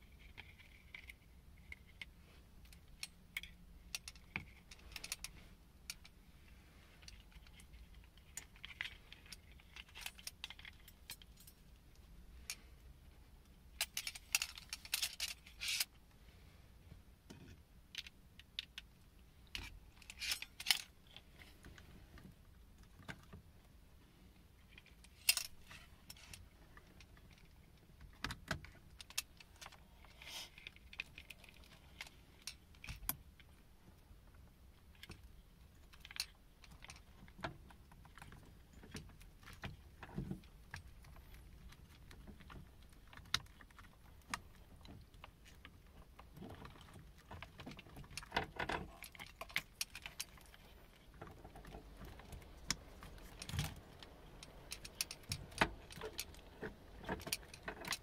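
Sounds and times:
hands handling metal parts: 0.1 - 6.2, 6.8 - 12.8, 13.4 - 16.1, 17.2 - 23.5, 24.6 - 33.6, 34.3 - 58.0
plastic connectors clattering: 13.8 - 15.9, 18.0 - 22.3, 35.0 - 58.0.

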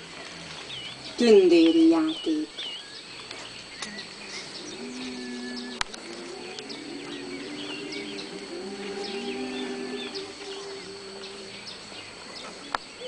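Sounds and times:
small birds chirping: 0.0 - 13.0
choir humming chords: 3.7 - 13.0.

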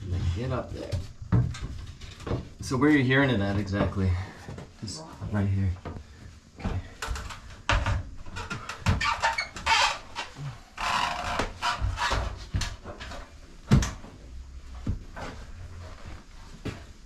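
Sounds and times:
knocks and thumps in ceiling: 0.0 - 17.0.

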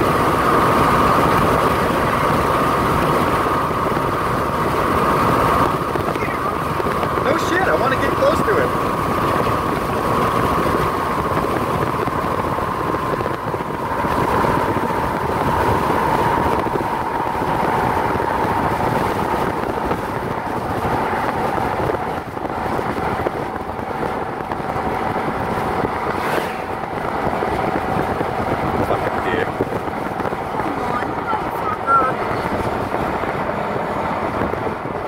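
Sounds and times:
car tyre and wind noise: 0.0 - 35.0.

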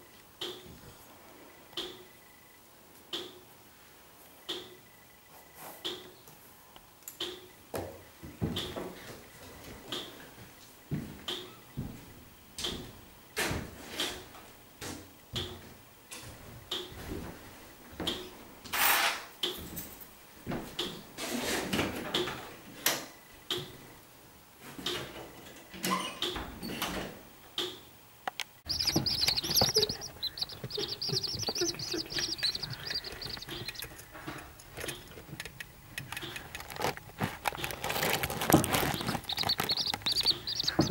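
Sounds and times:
chick peeping: 28.7 - 35.2, 37.6 - 40.9.

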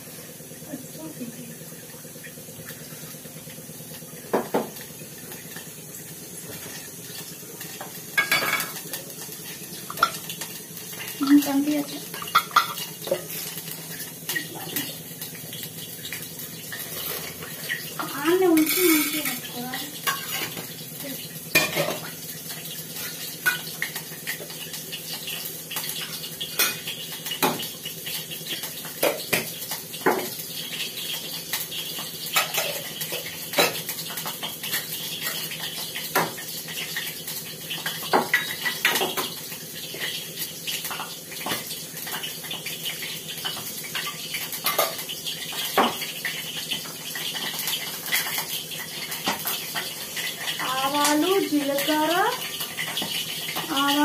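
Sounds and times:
steel utensils clinking: 17.0 - 20.6.

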